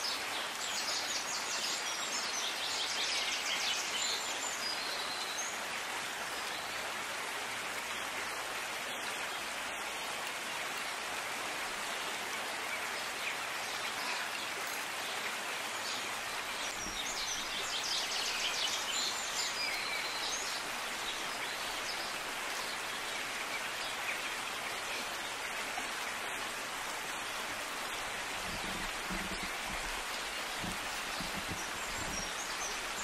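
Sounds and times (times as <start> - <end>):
outdoor background hiss: 0.0 - 33.0
birds chirping: 26.7 - 33.0.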